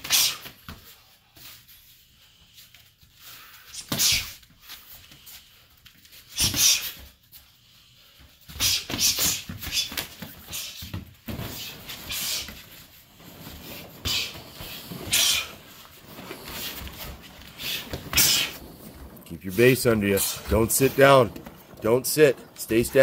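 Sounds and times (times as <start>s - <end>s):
hard breathing: 2.0s - 19.3s
scuffling: 9.7s - 23.0s.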